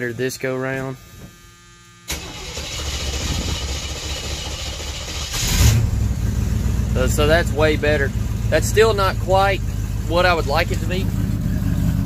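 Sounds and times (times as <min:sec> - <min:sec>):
engine starter cranking: 0:02.1 - 0:06.0
engine running: 0:02.1 - 0:12.0.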